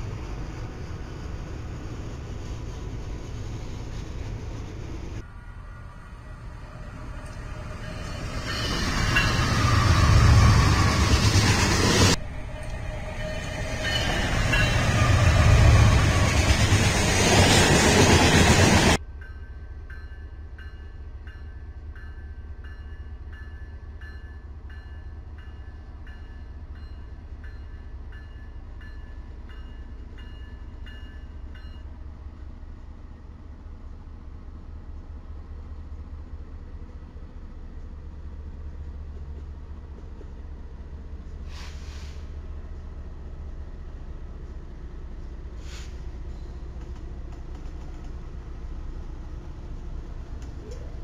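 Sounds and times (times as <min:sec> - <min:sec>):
trains passing: 0:00.0 - 0:51.0
locomotive bell ringing: 0:07.3 - 0:10.9, 0:12.4 - 0:16.3, 0:19.2 - 0:32.0.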